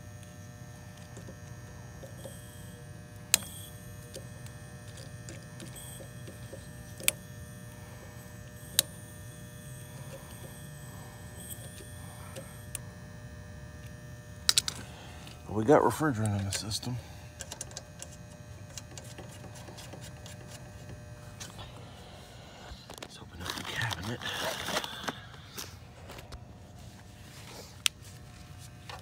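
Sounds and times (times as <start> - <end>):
fan motor humming: 0.0 - 29.0
faint refrigerant hisses: 14.6 - 29.0.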